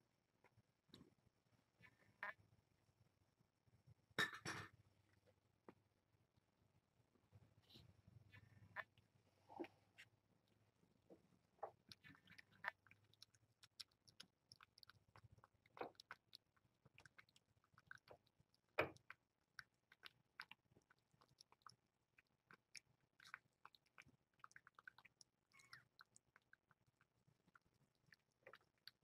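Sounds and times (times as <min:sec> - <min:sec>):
cat chewing and crunching: 0:11.2 - 0:29.0.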